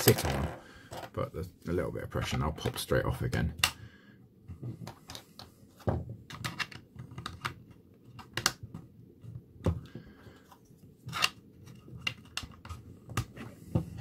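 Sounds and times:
plastic tiles clicking and knocking: 6.3 - 8.7.

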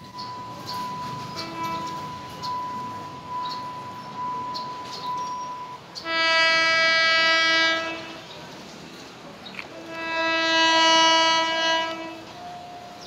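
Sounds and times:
level-crossing warning tone: 0.0 - 7.6, 9.8 - 13.0
train horn blast: 1.2 - 2.4, 6.0 - 8.4, 9.7 - 13.0.

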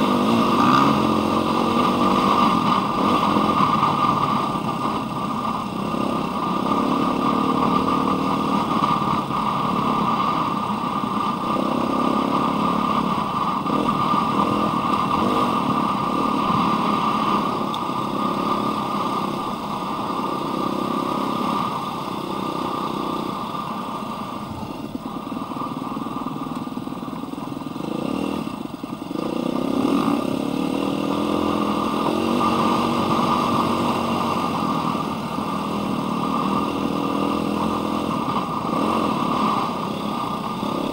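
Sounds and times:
dirt bike engine revving: 0.0 - 23.4, 27.8 - 40.9.

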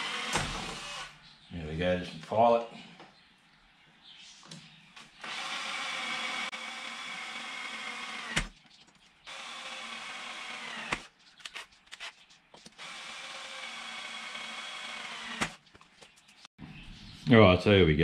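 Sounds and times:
cordless drill drilling into steel: 0.0 - 1.2, 5.2 - 8.4, 9.3 - 11.1, 12.8 - 15.6
drill click: 5.2 - 8.5, 12.8 - 15.6.

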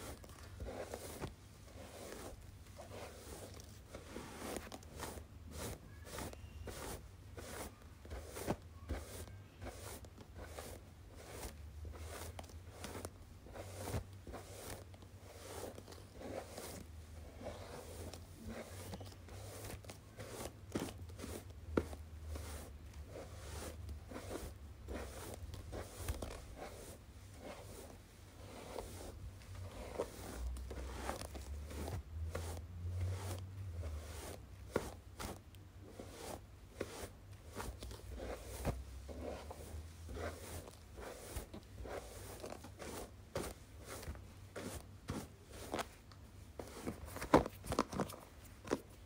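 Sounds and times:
hairbrush scratching microphone: 0.0 - 45.9.

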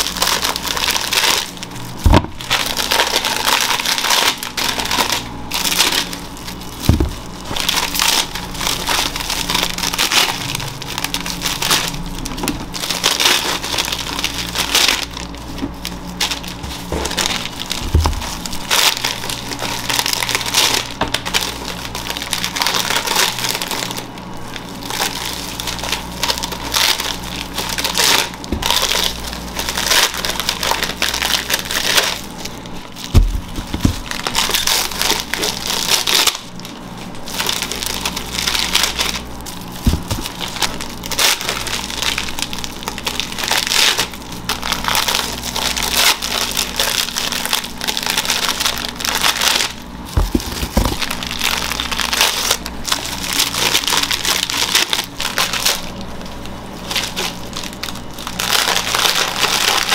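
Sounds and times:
food scraping and crunching: 0.0 - 59.9
dull thumps: 6.8 - 7.3, 16.6 - 18.4, 33.1 - 34.1, 39.8 - 40.4, 50.1 - 51.1.

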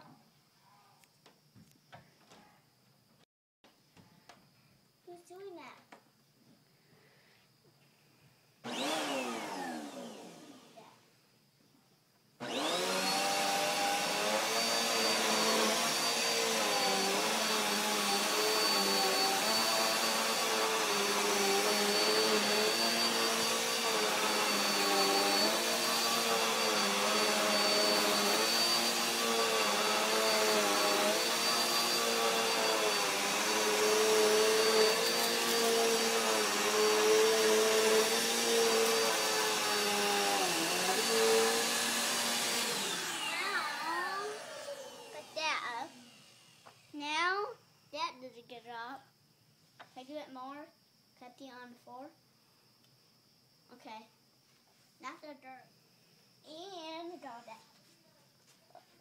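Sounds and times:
vacuum cleaner motor whining: 8.6 - 10.8, 12.4 - 46.9.

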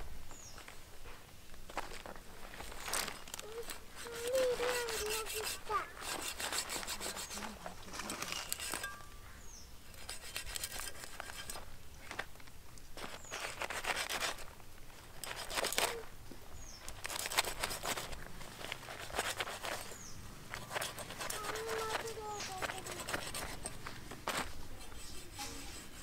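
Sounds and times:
knife scraping fish skin: 4.0 - 7.5, 8.2 - 9.0, 9.9 - 11.6, 13.0 - 14.5, 15.2 - 16.0, 16.9 - 26.0.

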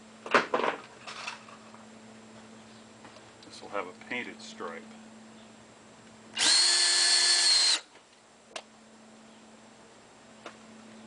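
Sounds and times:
cordless drill motor whine: 6.3 - 7.9.

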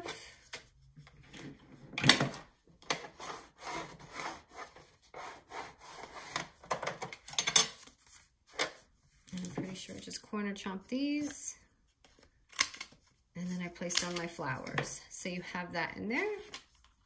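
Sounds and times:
bone folder scraping paper: 3.0 - 6.4.

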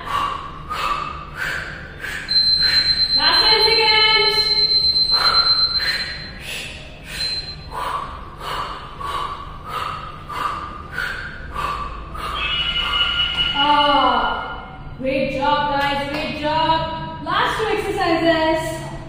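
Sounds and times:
woman breathing hard: 0.0 - 3.2, 5.0 - 13.1.

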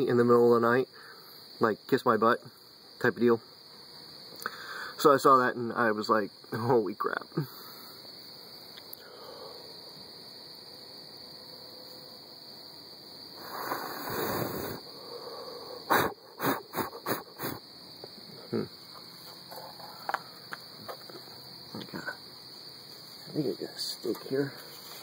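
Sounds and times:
crickets chirping: 0.0 - 25.0
brief rustle: 24.1 - 25.0.

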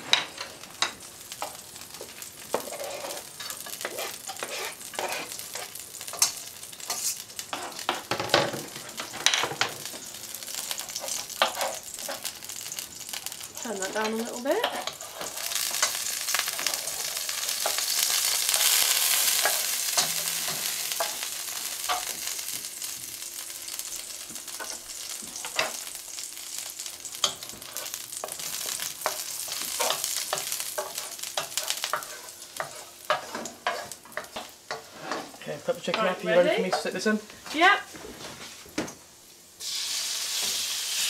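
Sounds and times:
garlic sizzling in hot oil: 0.0 - 37.8, 39.2 - 41.0.

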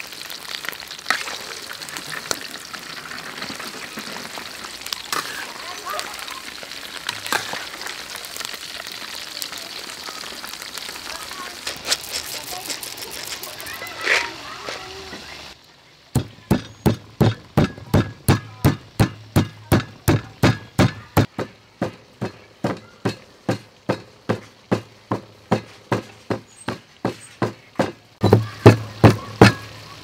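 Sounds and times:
pestle pounding in stone mortar: 16.2 - 29.6.

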